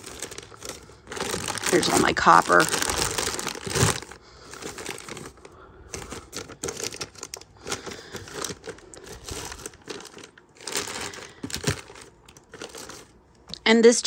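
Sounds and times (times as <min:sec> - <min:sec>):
plastic bags crinkling: 0:00.0 - 0:13.6.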